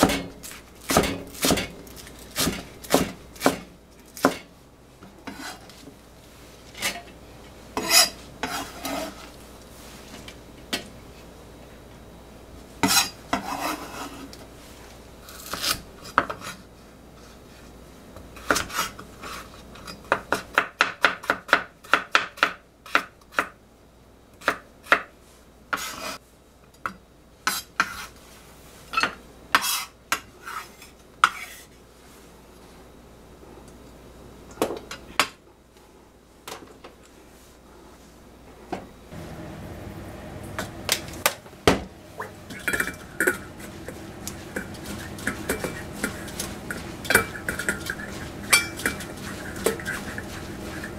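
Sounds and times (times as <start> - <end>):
knife chopping carrot on wood: 2.4 - 4.4.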